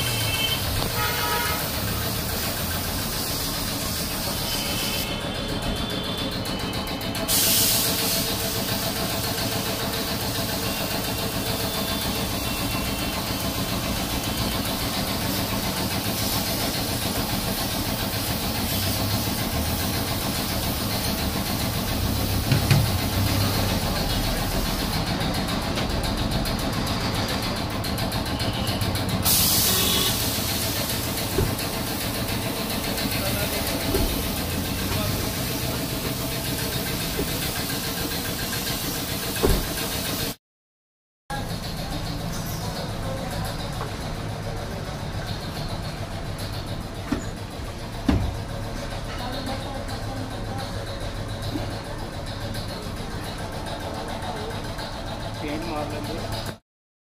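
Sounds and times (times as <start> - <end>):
engine-like hum: 0.0 - 40.4, 41.3 - 56.6
compressed air hissing from spray gun: 0.1 - 5.2, 7.2 - 25.0, 29.2 - 40.4.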